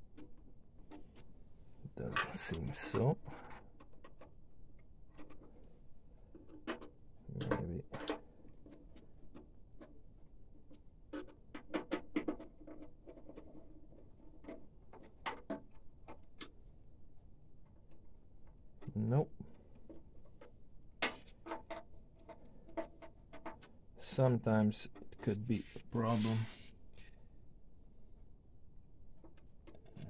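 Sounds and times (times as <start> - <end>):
clicks and taps on plastic parts: 10.6 - 16.6.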